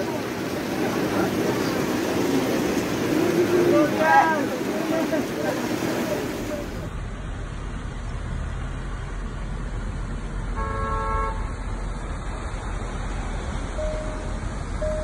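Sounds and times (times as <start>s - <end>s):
wind and heavy rain: 0.0s - 15.0s
car horn honk: 10.6s - 11.5s
repeating beeping tone: 13.8s - 15.0s.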